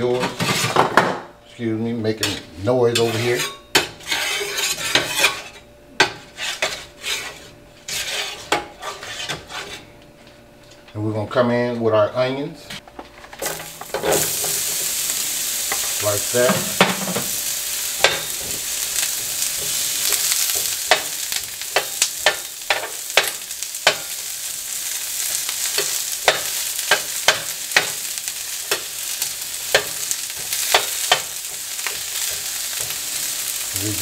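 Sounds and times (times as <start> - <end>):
metal scraper on griddle: 0.2 - 0.8, 2.2 - 9.9, 13.4 - 15.0, 15.6 - 33.6
onions sizzling in oil: 13.4 - 34.0.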